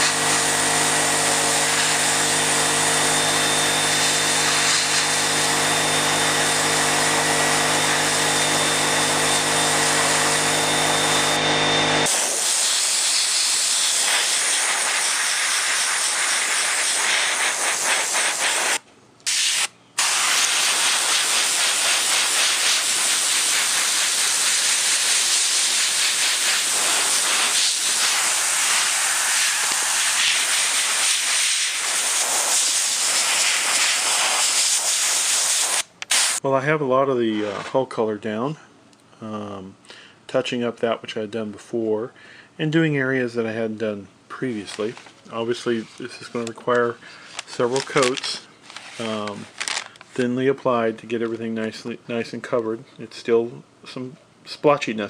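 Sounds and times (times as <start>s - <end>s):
airbrush spraying hiss: 0.0s - 2.6s, 3.4s - 5.6s, 12.1s - 36.4s.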